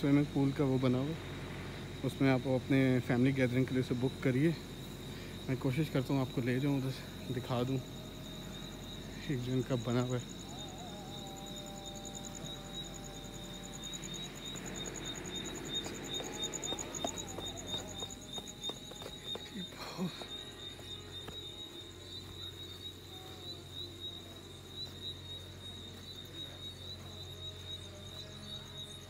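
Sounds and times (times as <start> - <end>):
crickets trilling: 0.0 - 29.0.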